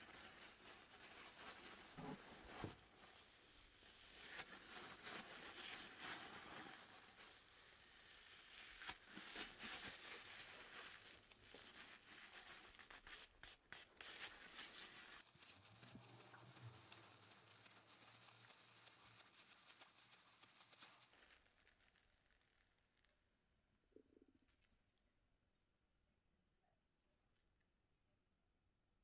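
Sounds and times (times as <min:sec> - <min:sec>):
paper towel rubbing wooden handle: 0:08.5 - 0:21.1.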